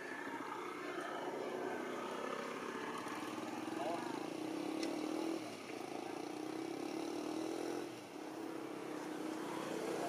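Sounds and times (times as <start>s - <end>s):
vehicle engine humming: 0.0s - 10.0s.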